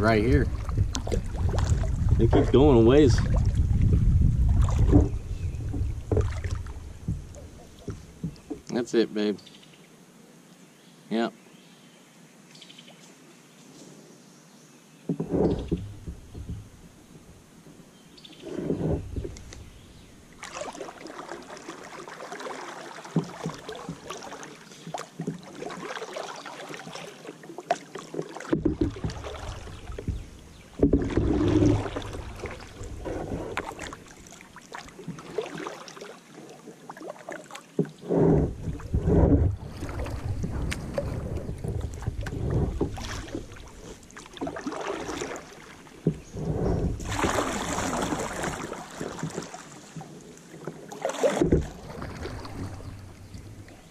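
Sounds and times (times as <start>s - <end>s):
wind buffeting microphone: 0.0s - 8.4s, 38.0s - 43.9s, 46.0s - 48.2s
paddle splashing in water: 0.0s - 8.8s, 15.1s - 17.4s, 18.3s - 53.9s.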